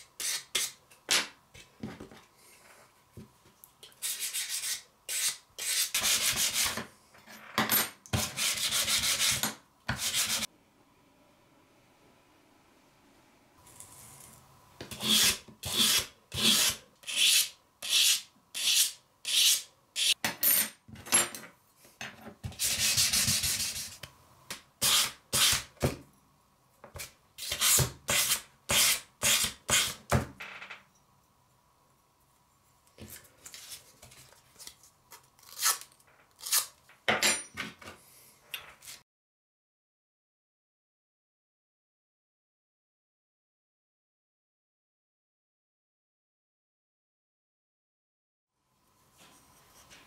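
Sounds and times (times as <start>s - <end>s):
hand sanding with sandpaper: 4.0s - 6.8s, 8.2s - 9.4s, 10.0s - 10.5s, 22.5s - 24.0s.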